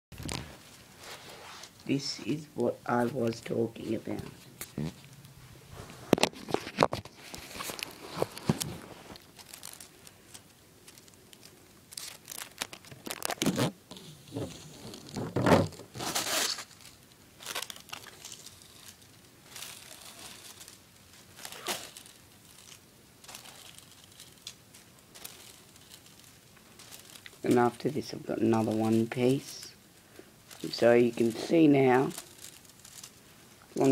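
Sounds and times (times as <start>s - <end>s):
tape crinkling and rustling: 0.2s - 33.9s.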